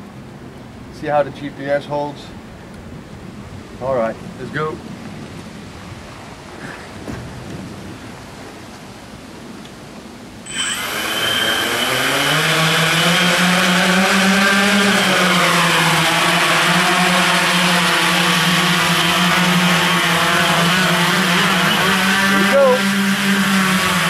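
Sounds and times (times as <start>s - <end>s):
drone motors buzzing: 10.4s - 24.0s.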